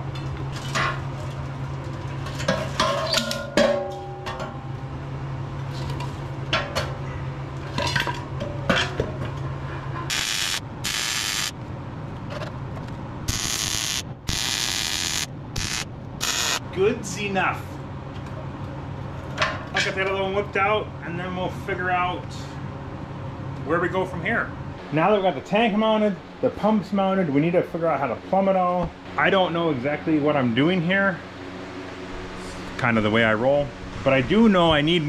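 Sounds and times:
welding crackle: 10.1s - 11.6s, 13.3s - 16.6s.

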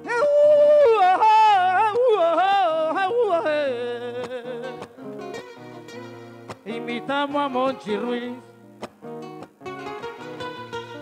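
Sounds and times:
person singing wordless vocal line: 0.0s - 4.9s, 6.6s - 8.7s.

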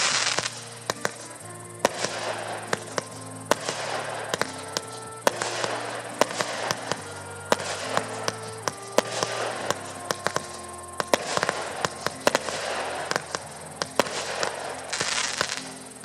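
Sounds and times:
fireworks bangs and crackles: 0.0s - 16.0s
music with long held notes: 0.0s - 16.0s.

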